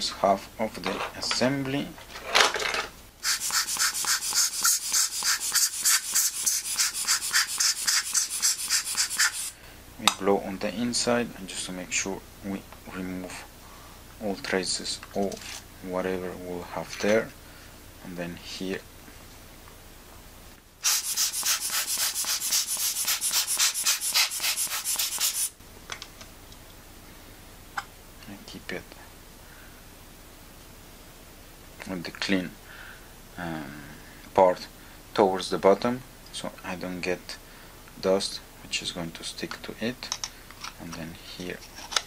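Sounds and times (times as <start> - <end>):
air blower hissing puffs: 3.2 - 9.9, 20.8 - 25.6.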